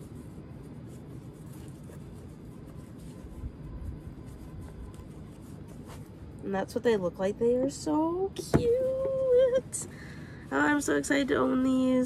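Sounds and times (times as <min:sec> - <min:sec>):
low steady rumble: 0:00.0 - 0:12.0.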